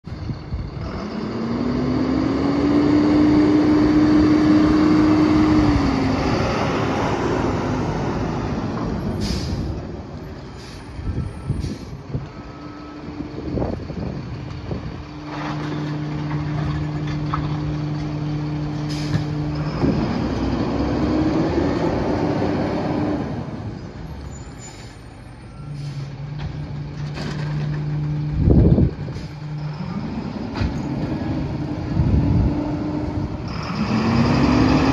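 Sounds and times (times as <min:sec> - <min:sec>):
garbage truck diesel engine: 0:00.0 - 0:34.9
air brake hissing: 0:09.1 - 0:09.8, 0:10.5 - 0:12.0, 0:18.8 - 0:19.3, 0:24.5 - 0:26.2.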